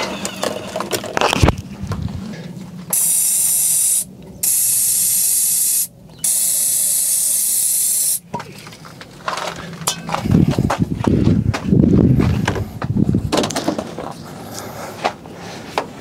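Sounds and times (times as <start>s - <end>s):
aerosol spray hissing: 2.9s - 8.2s.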